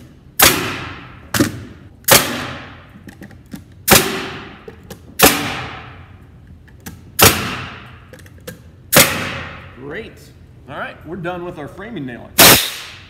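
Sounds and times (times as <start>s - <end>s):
nail gun firing nails: 0.4s - 2.8s, 3.8s - 5.9s, 7.2s - 7.9s, 8.9s - 9.6s, 12.4s - 13.0s.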